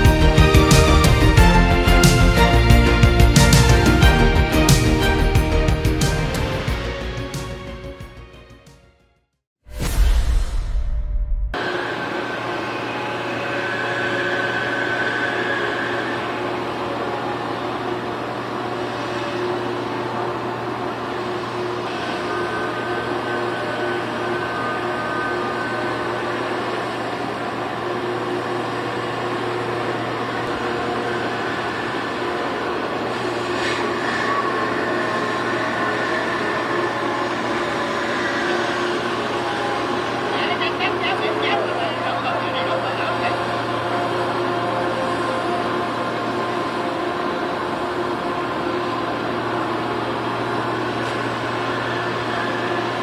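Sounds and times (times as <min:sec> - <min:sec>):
engine drone: 0:00.0 - 0:08.2, 0:09.8 - 0:53.0
long held tones: 0:11.6 - 0:53.0.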